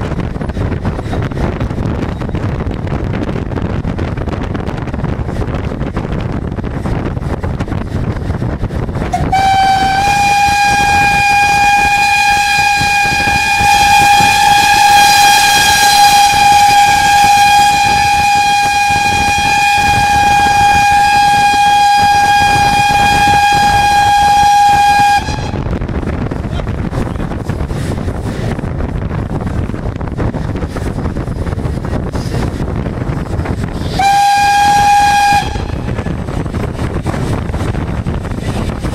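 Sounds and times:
train rumble and wind: 0.0s - 38.9s
steam locomotive whistle: 9.1s - 25.7s, 33.8s - 36.1s.

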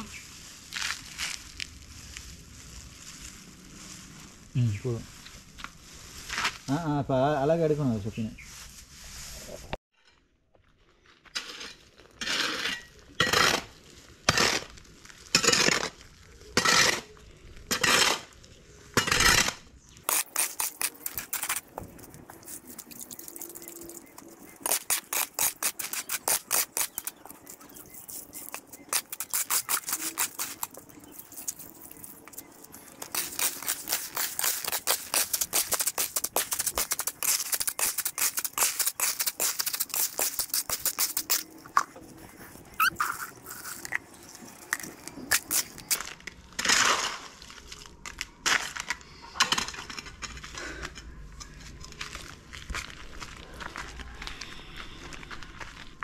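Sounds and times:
hoe scraping wet cement and gravel: 11.2s - 50.1s.

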